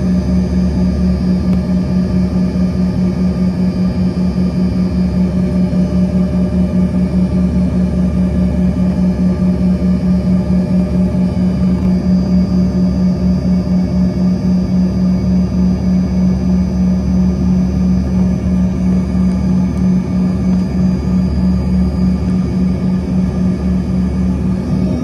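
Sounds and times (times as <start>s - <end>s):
faint engine whine: 0.0s - 25.0s
jet engine low drone: 0.0s - 25.0s.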